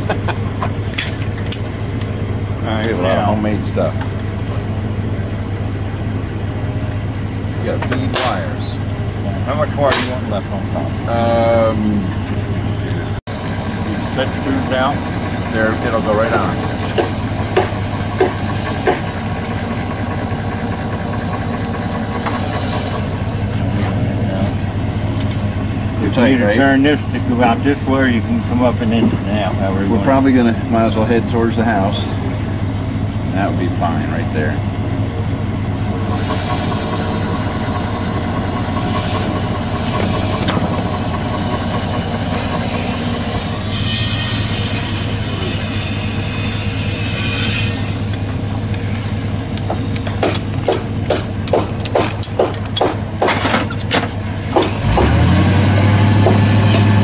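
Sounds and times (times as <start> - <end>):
engine idling: 0.0 - 57.0.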